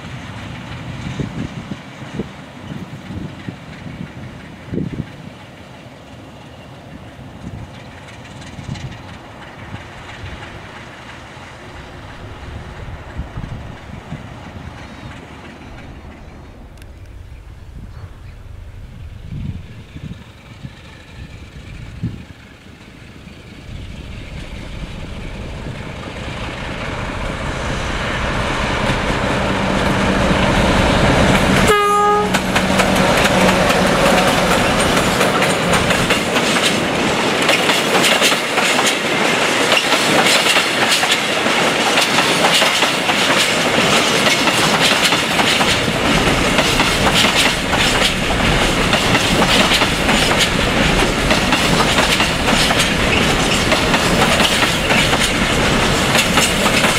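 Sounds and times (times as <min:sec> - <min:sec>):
diesel locomotive engine: 0:00.0 - 0:56.9
train wagons clattering by: 0:00.0 - 0:56.9
train horn blast: 0:31.5 - 0:33.2.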